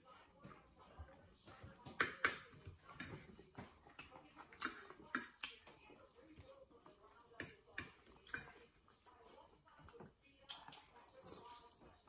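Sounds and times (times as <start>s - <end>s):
cutlery clicking on plates: 1.9s - 3.6s, 4.5s - 5.6s, 7.4s - 8.6s.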